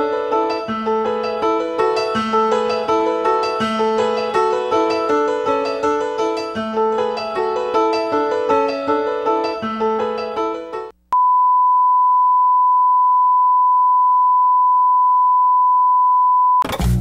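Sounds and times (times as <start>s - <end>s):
theme music with keyboard notes: 0.0s - 10.9s.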